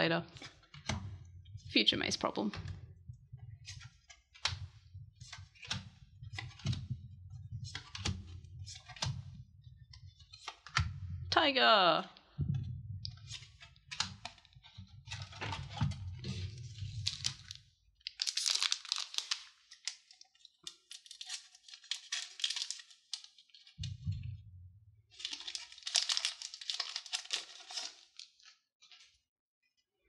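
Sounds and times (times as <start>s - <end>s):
low handling rumble: 12.4s - 13.3s
foil wrapper crinkling: 16.8s - 23.7s, 25.2s - 28.5s.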